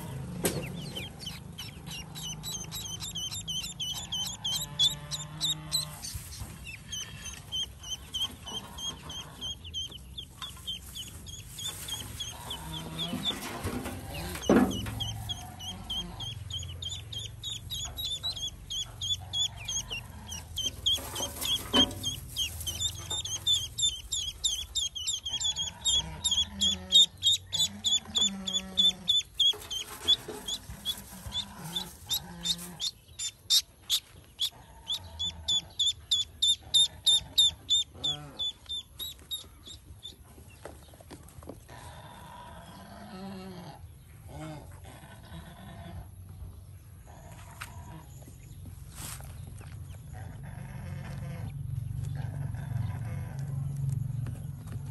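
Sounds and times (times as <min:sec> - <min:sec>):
adult duck clucking: 0:00.0 - 0:40.1
ducklings peeping: 0:00.0 - 0:54.9.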